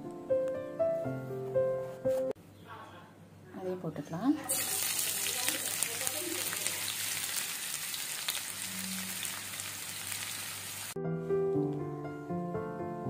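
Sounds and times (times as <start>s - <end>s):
background music: 0.0s - 2.4s, 11.0s - 13.0s
onions sizzling in hot oil: 4.5s - 11.0s.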